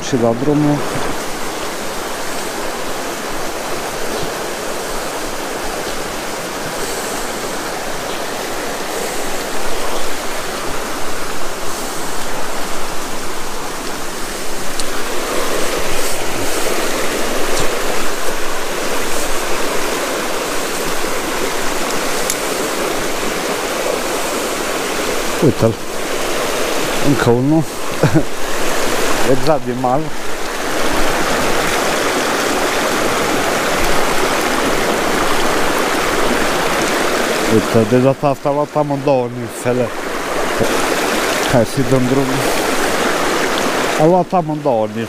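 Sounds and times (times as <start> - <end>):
river flowing over rocks: 0.0 - 45.0.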